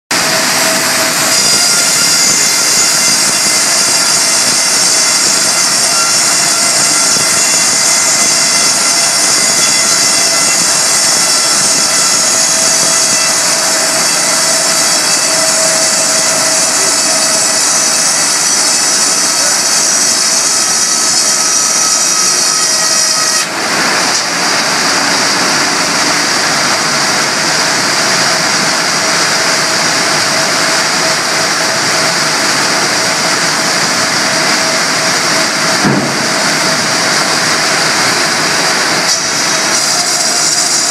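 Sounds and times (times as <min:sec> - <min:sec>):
bandsaw cutting log: 0:00.1 - 0:40.9
high whistling whine: 0:00.1 - 0:40.9.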